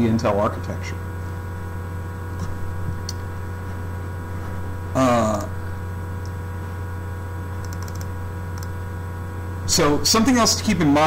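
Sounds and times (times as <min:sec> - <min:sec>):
low electrical hum: 0:00.0 - 0:11.0
faint clicks: 0:07.6 - 0:08.8.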